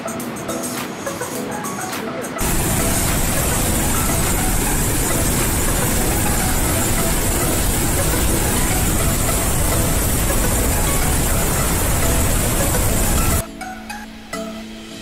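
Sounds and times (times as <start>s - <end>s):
loud rush of water: 2.4s - 13.4s.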